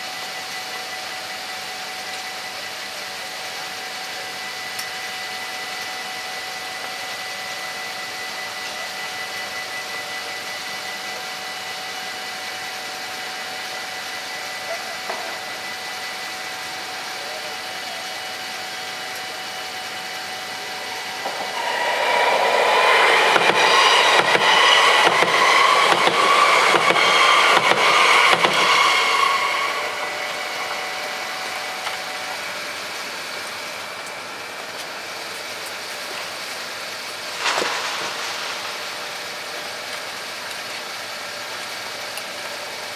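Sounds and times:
electric train passing: 18.9s - 34.4s, 37.1s - 40.9s
train wheels clattering: 20.8s - 32.4s.

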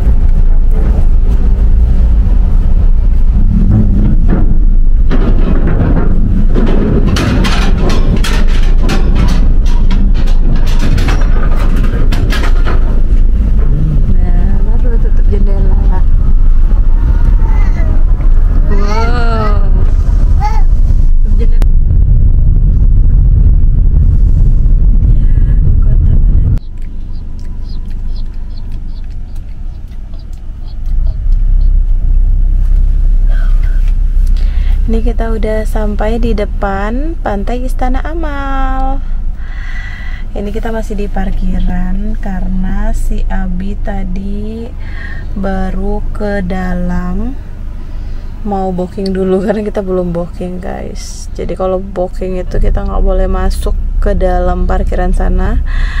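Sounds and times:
metallic clanks and rattles: 0.0s - 21.7s
car tyres rumbling on grating: 0.0s - 56.0s
road noise: 0.0s - 56.0s.

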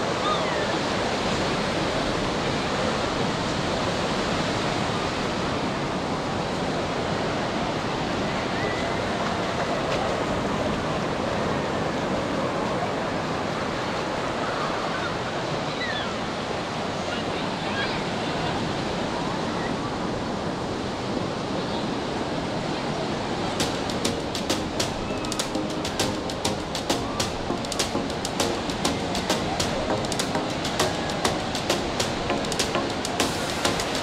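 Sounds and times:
surf washing up beach: 22.4s - 34.0s.

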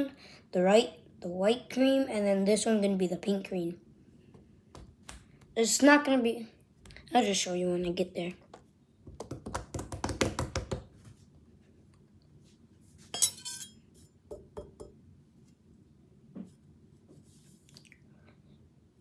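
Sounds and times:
kitchenware clink with ringing: 13.1s - 13.9s.

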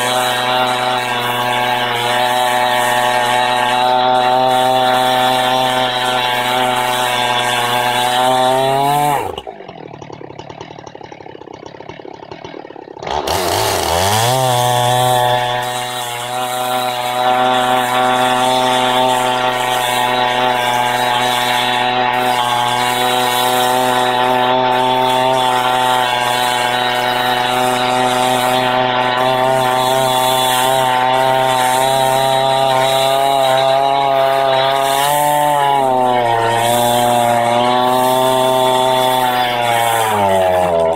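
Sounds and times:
chainsaw cutting through log: 0.0s - 40.9s.

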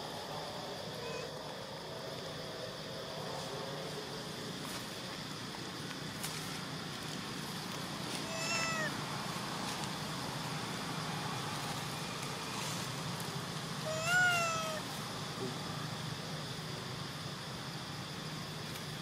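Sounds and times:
baby monkey crying: 8.3s - 8.9s, 13.9s - 14.8s.

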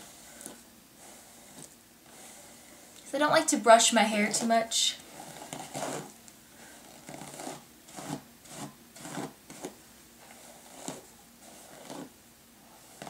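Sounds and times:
brush strokes through hair: 0.0s - 3.0s.

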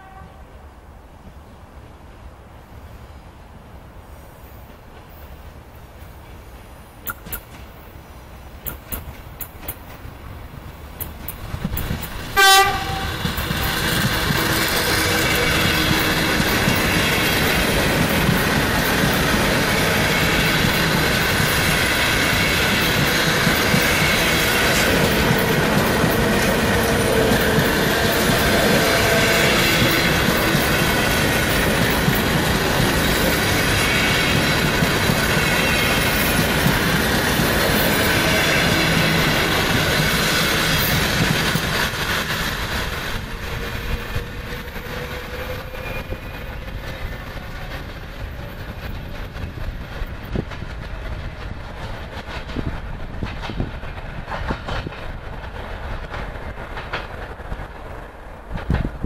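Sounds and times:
train passing with rail noise: 0.0s - 59.0s
wheels clicking on rails: 10.9s - 59.0s.

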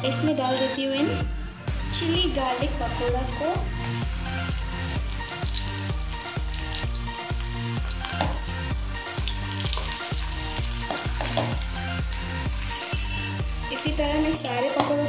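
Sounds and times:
background music: 0.0s - 15.0s
batter sizzling in hot oil: 3.6s - 14.9s.

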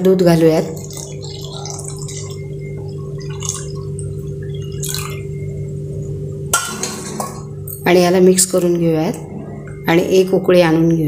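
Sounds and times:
steady humming tone: 0.0s - 11.0s
milk pouring into a steel pan: 0.8s - 5.1s.

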